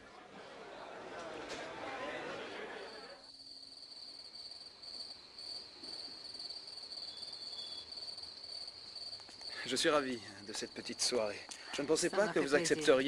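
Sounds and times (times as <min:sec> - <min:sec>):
crickets trilling: 0:03.2 - 0:13.0.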